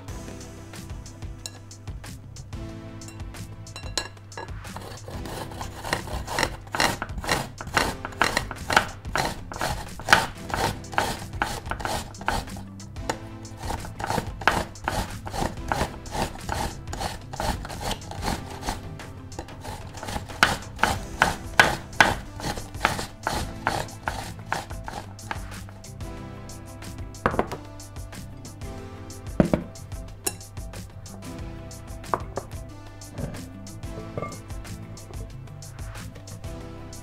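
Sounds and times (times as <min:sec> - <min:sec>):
apple rasping on a grater: 0:04.7 - 0:25.8.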